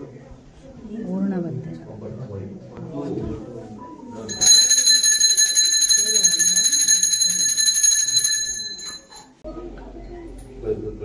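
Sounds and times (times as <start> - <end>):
temple bell rung rapidly: 4.3 - 9.3.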